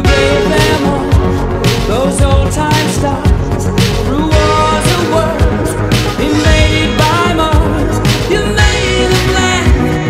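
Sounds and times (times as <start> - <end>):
pop music with drum beat: 0.0 - 10.0.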